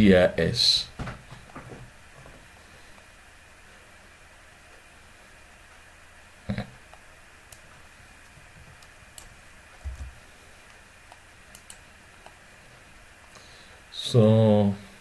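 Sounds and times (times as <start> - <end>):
keyboard and mouse clicks: 11.1 - 12.4.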